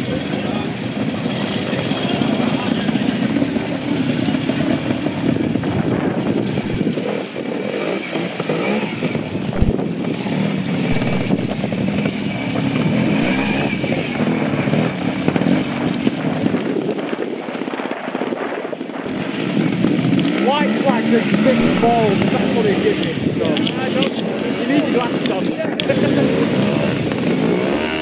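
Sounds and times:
motorcycle engine revving: 0.0s - 17.1s, 19.0s - 28.0s
low thump: 9.6s - 9.8s, 10.9s - 11.8s.

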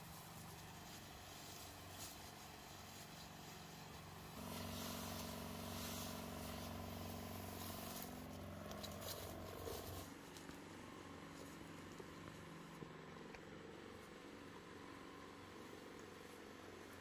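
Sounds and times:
spray hissing: 0.0s - 10.1s
pump motor humming: 0.0s - 11.2s.

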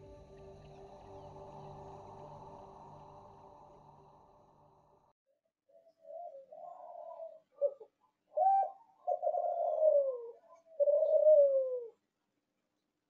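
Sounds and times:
dove cooing: 5.8s - 12.0s.

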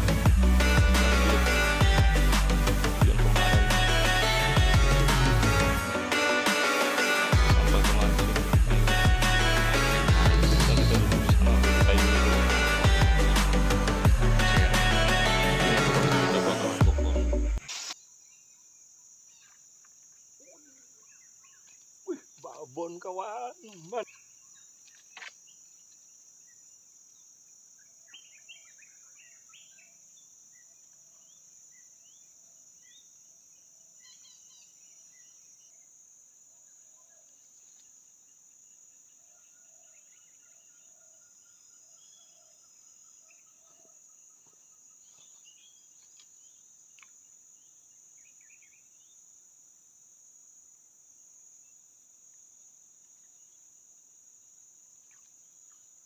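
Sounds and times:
high-pitched insect drone: 0.0s - 18.0s
faint bird chirps: 16.9s - 49.3s.

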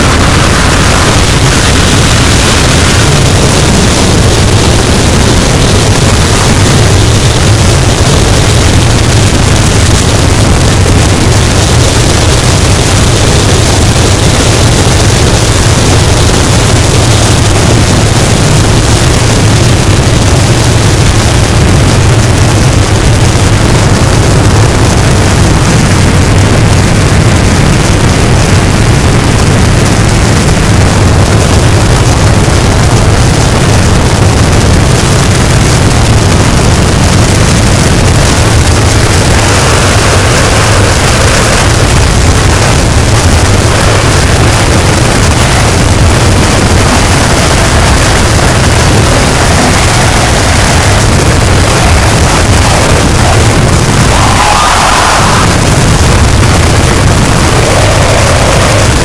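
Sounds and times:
heavy low rumble: 0.0s - 59.0s
static hiss noise wall: 0.0s - 59.0s
bright hiss: 38.5s - 59.0s.

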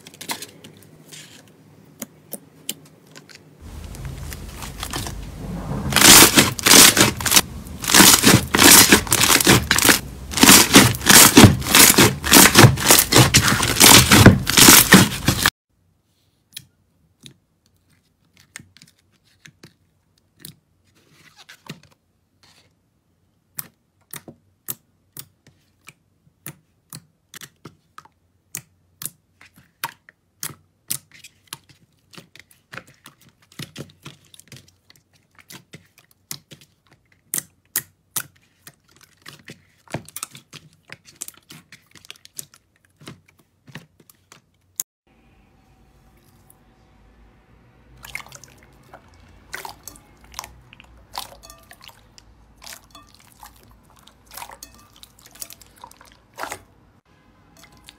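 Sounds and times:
hands squishing slime: 3.6s - 15.5s, 23.5s - 44.5s, 48.0s - 56.7s.

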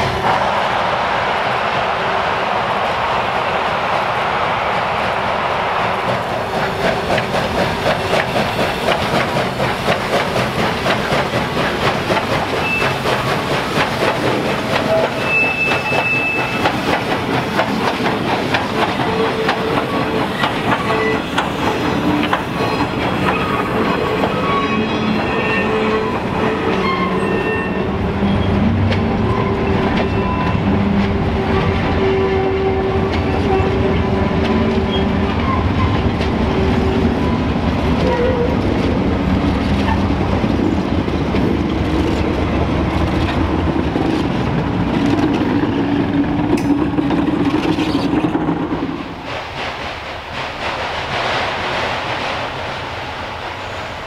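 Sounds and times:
diesel locomotive engine rumble: 0.0s - 54.0s
steam locomotive working: 0.0s - 54.0s
train wheels clacking over rail joints: 5.8s - 54.0s
wheel squeals: 12.6s - 13.2s, 14.8s - 16.8s.

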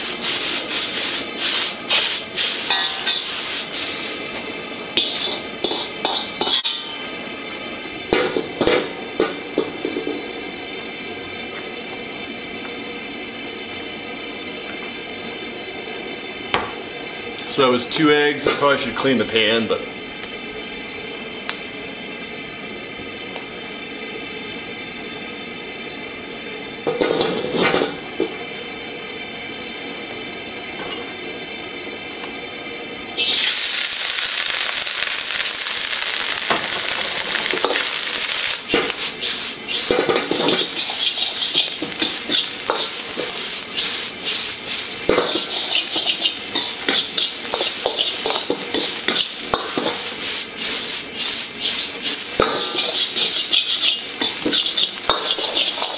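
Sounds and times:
rice sizzling in a wok: 0.0s - 55.9s
metal ladle scraping a wok: 0.8s - 4.1s, 5.0s - 7.1s, 38.7s - 55.9s.

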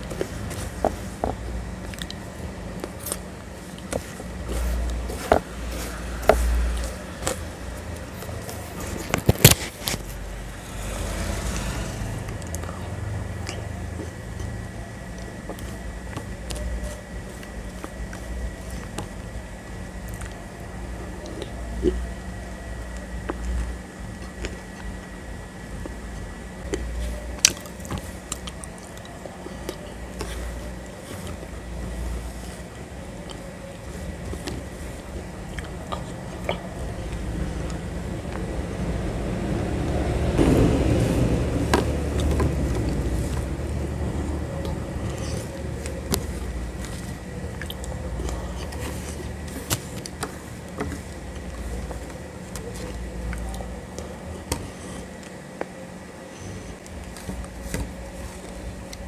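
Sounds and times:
wet chewing and squishing: 1.8s - 2.2s, 20.0s - 20.4s, 26.6s - 32.2s, 44.5s - 55.4s.

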